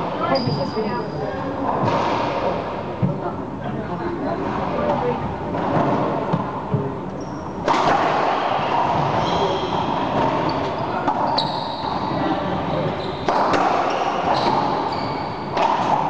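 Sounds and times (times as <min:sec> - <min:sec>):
racquetball striking walls and floor: 0:01.7 - 0:03.2, 0:04.4 - 0:16.0
racquets hitting ball: 0:07.6 - 0:16.0.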